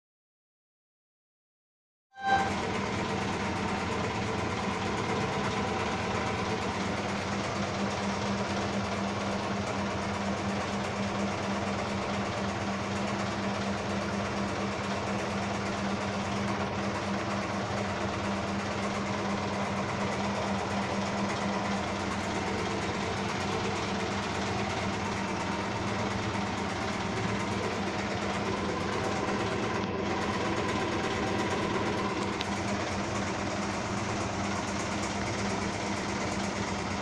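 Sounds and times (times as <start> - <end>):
washing machine running: 2.2 - 37.0.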